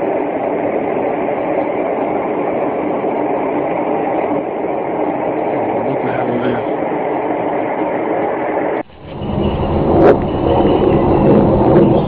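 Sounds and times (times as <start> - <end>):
loud droning roar: 8.8 - 12.0.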